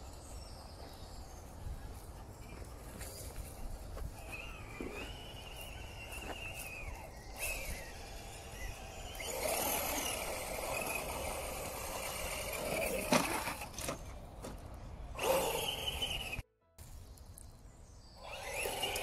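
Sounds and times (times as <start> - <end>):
electric motor whining: 4.0 - 14.1, 15.2 - 16.4, 18.2 - 19.0.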